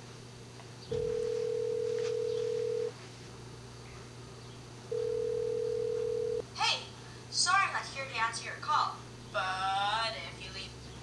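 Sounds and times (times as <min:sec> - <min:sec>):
telephone ringback tone: 0:00.9 - 0:02.9, 0:04.9 - 0:06.4.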